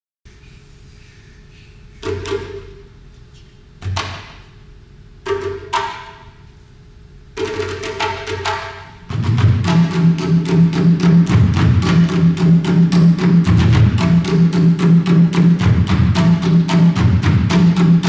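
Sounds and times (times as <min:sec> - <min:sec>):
drum strikes: 0:05.2 - 0:06.4, 0:07.4 - 0:18.0.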